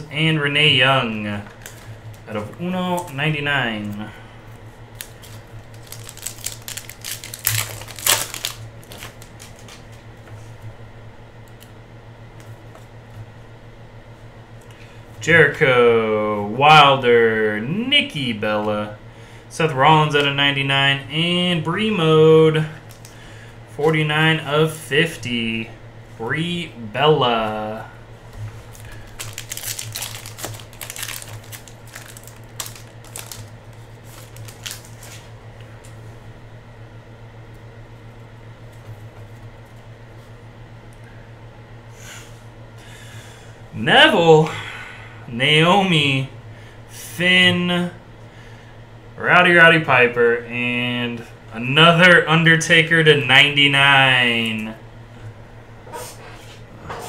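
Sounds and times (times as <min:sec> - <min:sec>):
low electrical hum: 0:00.0 - 0:57.0
foil wrapper crinkling rips: 0:05.0 - 0:09.9, 0:28.7 - 0:35.3.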